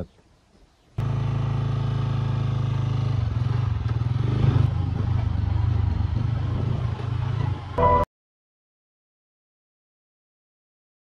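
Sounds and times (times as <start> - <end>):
motorcycle engine running: 1.0 - 8.0.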